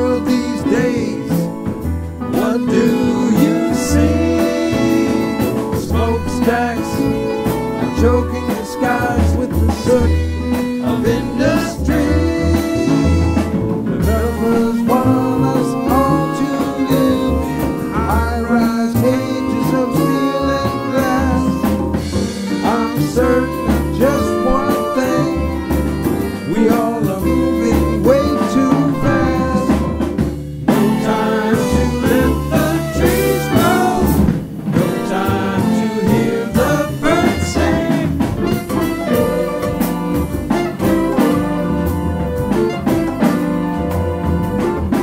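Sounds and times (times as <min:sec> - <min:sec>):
lead vocal: 0:00.0 - 0:41.6
band playing: 0:00.0 - 0:45.0
steady bass and drum pulse: 0:09.2 - 0:18.4, 0:27.0 - 0:45.0.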